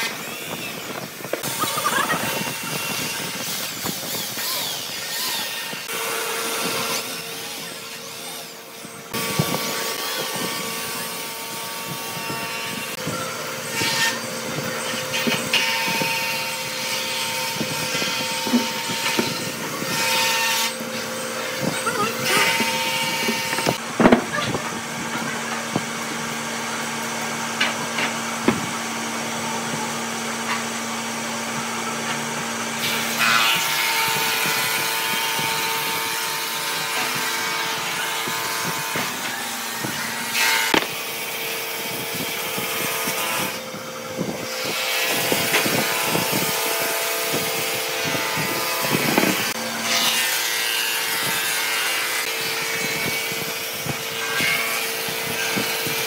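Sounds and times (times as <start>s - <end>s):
wood rubbing and creaking: 13.7s - 26.0s.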